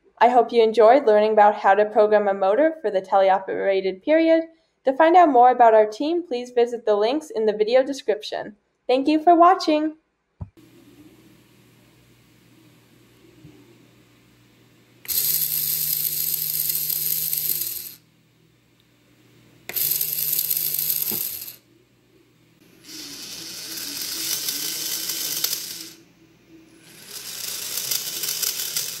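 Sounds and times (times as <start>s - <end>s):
gearmotor whirring and rattling: 15.0s - 18.1s, 19.6s - 21.6s, 22.7s - 26.0s, 26.7s - 29.0s.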